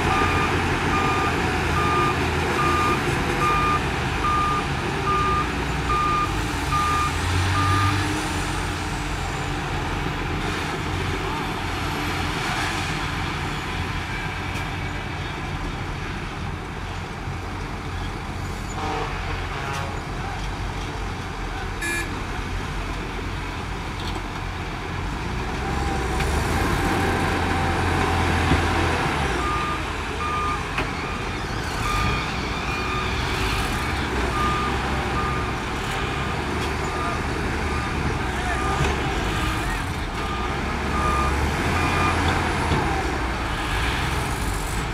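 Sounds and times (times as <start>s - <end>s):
diesel engines under load: 0.0s - 44.9s
reversing alarm beeping: 0.1s - 8.0s, 29.4s - 33.5s.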